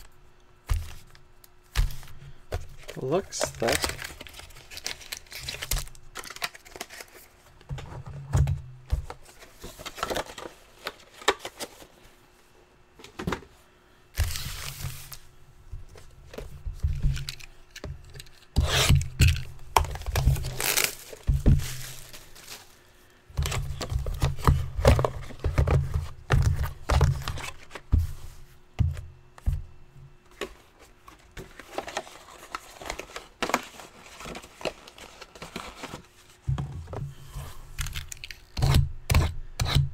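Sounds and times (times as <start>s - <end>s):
packaging tearing and crinkling: 3.3s - 7.4s, 17.1s - 22.8s, 37.8s - 38.8s
boxes knocking on table: 36.4s - 37.1s.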